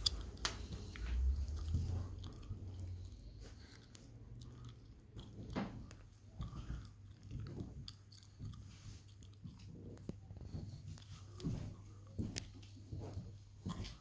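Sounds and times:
footsteps: 0.0 - 4.1, 5.3 - 14.0
low rumble: 0.0 - 6.6.

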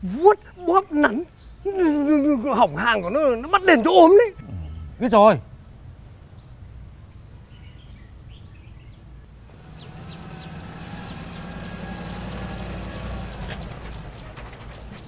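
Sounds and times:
birds chirping: 0.0 - 15.0
jeep engine running: 9.4 - 15.0.

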